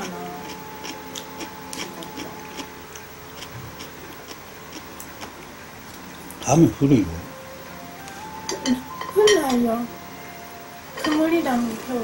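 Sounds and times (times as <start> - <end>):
chopsticks clicking: 0.0 - 3.5
person chewing: 0.0 - 6.4.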